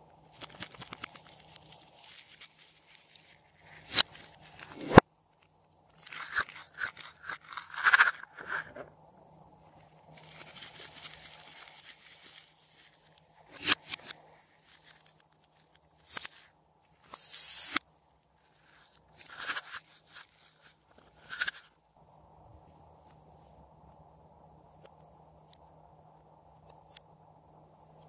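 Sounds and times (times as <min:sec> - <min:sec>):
soft rustling handling noise: 0:00.1 - 0:04.8, 0:09.6 - 0:17.1.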